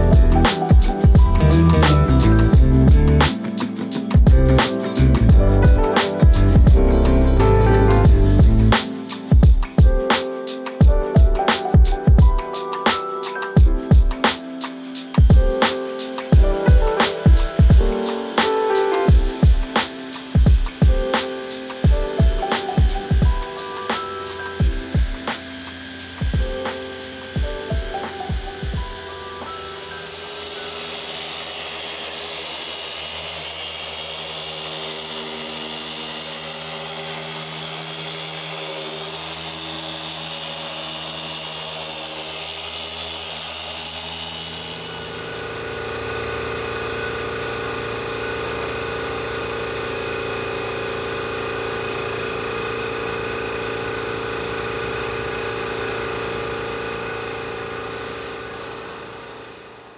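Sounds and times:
electric machine polisher running: 0.0 - 59.9.

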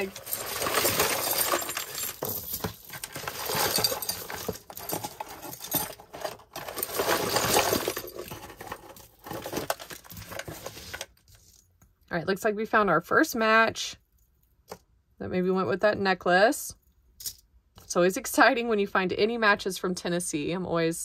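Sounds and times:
jewelry clinking and rattling: 0.0 - 11.6.

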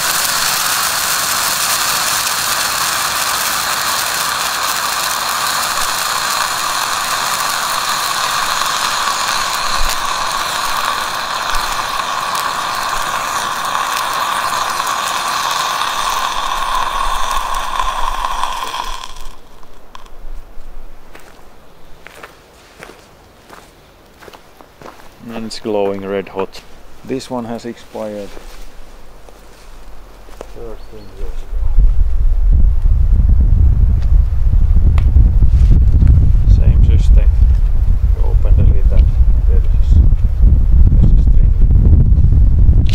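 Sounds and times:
flare burning with loud hiss: 0.0 - 20.4, 27.1 - 42.9.

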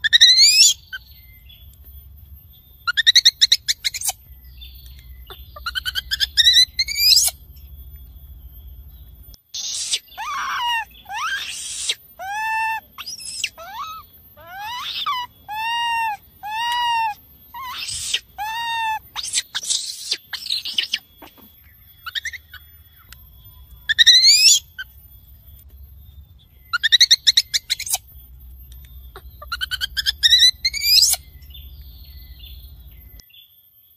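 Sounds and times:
infant monkey calling: 0.0 - 1.0, 2.9 - 4.2, 5.2 - 7.4, 9.6 - 23.2, 23.8 - 25.0, 26.7 - 28.1, 29.1 - 31.5
shrill rising screeches with trills: 9.6 - 21.4.

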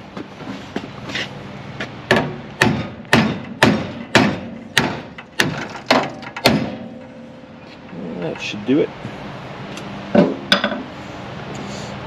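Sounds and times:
hammer striking metal: 2.1 - 7.6.

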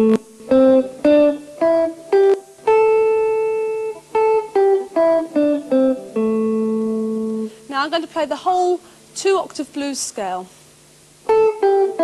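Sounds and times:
electric guitar single notes: 0.0 - 9.1, 11.2 - 12.0.

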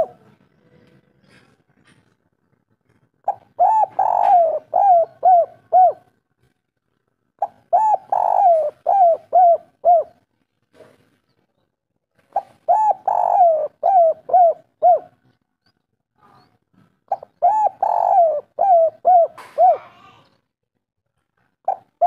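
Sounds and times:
dove cooing: 0.0 - 0.3, 3.2 - 6.1, 7.4 - 10.2, 12.3 - 15.3, 17.1 - 20.2, 21.6 - 22.0.

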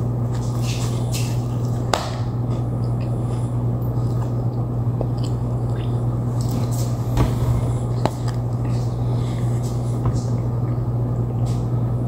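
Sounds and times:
steady low hum: 0.0 - 12.0
chewing cookie: 0.3 - 7.1.

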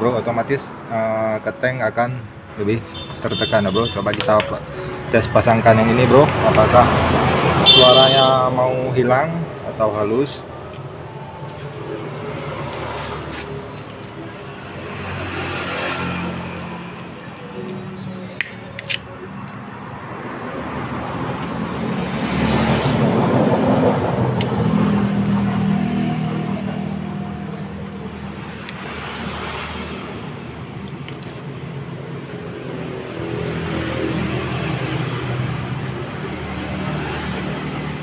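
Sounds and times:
sharp metallic clicks: 16.8 - 19.7.

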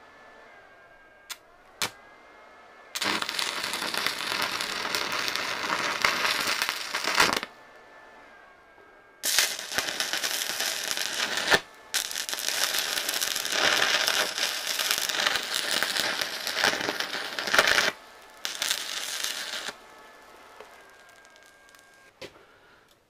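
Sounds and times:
welding arc crackling and sizzling: 3.0 - 7.5, 9.2 - 22.1.

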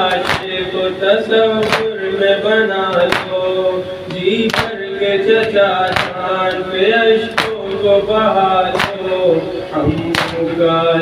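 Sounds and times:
men beating chests: 0.0 - 0.9, 1.5 - 2.2, 2.8 - 3.6, 4.4 - 8.0, 8.6 - 9.3, 9.9 - 10.5
man chanting through a microphone: 0.0 - 11.0.

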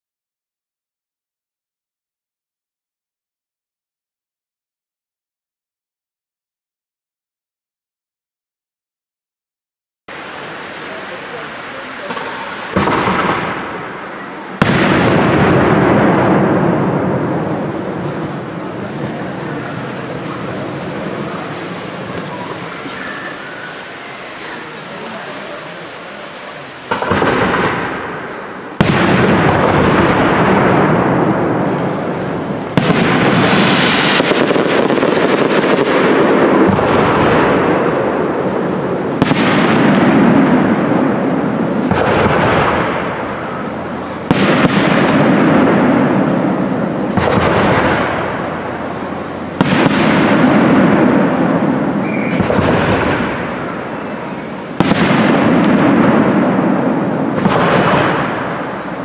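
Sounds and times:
rolling rumble: 10.9 - 59.0
firework shells bursting: 12.0 - 23.4, 26.9 - 59.0.

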